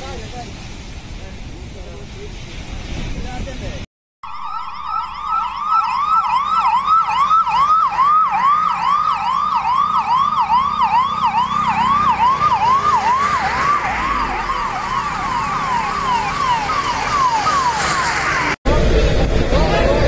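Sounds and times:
emergency vehicle sirens yelping: 0:04.2 - 0:20.0
bus and truck driving past: 0:07.2 - 0:20.0.

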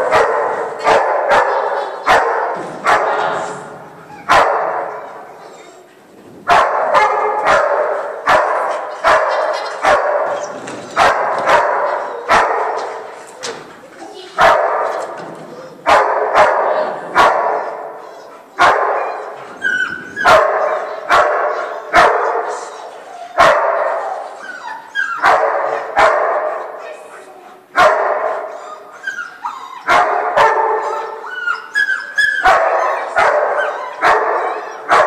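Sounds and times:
dog barking with echo: 0:00.0 - 0:03.4, 0:04.3 - 0:05.2, 0:06.5 - 0:10.4, 0:11.0 - 0:13.0, 0:14.4 - 0:15.1, 0:15.8 - 0:19.2, 0:20.2 - 0:22.6, 0:23.4 - 0:24.1, 0:25.2 - 0:26.8, 0:27.8 - 0:28.5, 0:29.9 - 0:31.2, 0:32.4 - 0:35.0.

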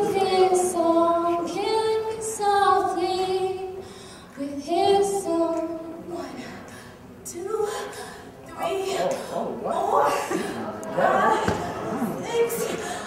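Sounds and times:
woman singing unaccompanied: 0:00.0 - 0:03.8, 0:04.4 - 0:06.6, 0:07.3 - 0:09.1.

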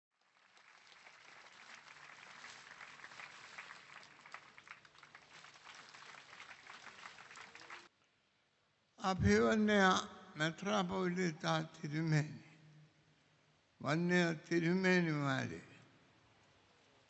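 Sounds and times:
faint audience applause: 0:00.2 - 0:07.9.

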